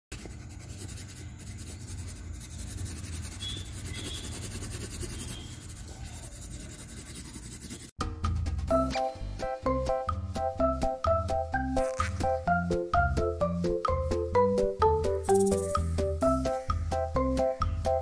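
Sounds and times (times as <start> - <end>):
scratchy rubbing noise: 0.1 - 7.9, 11.8 - 12.4, 15.3 - 15.8
music with distinct notes: 8.0 - 18.0.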